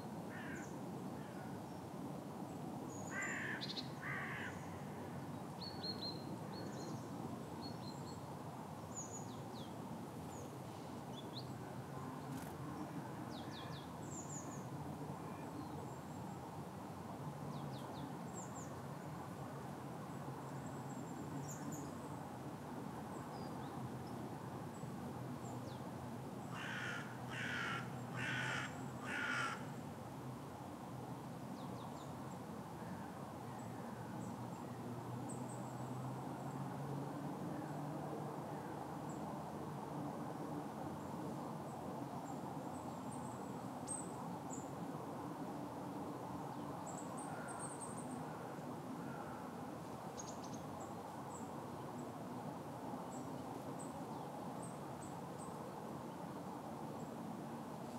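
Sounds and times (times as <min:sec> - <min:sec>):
crow cawing: 0:00.3 - 0:00.6, 0:03.1 - 0:04.6, 0:26.5 - 0:29.7, 0:48.3 - 0:49.5.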